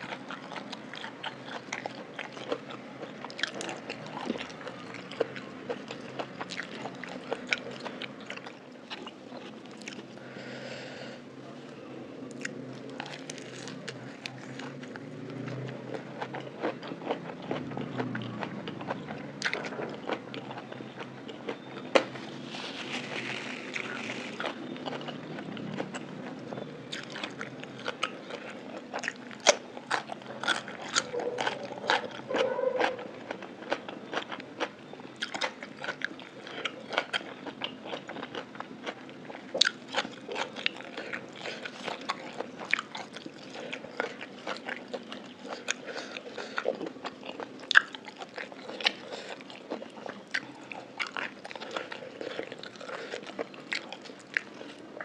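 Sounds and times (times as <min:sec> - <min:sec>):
wet chewing and crunching: 0:00.0 - 0:10.2, 0:12.3 - 0:55.0.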